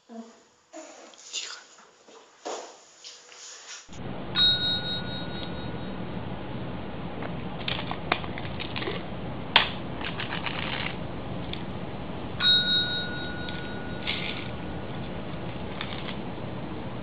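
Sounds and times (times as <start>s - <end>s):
service bell ding: 4.3s - 6.0s, 12.4s - 14.4s.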